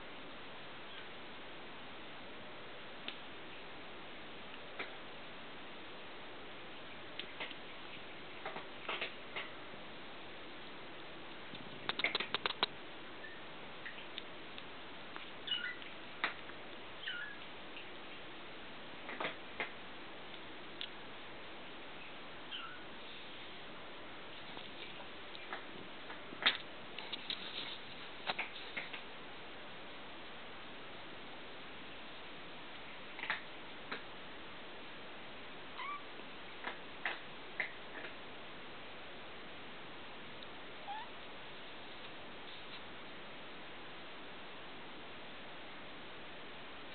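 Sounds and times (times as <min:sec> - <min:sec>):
steady hiss: 0:00.0 - 0:46.9
kitten mewing: 0:35.8 - 0:36.1, 0:40.8 - 0:41.2.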